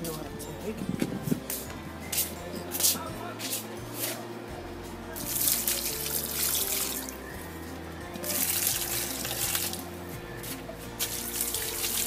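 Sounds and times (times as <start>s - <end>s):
background music with bass line: 0.0s - 12.0s
water pouring and splashing: 5.2s - 7.2s, 8.2s - 9.9s, 11.0s - 12.0s.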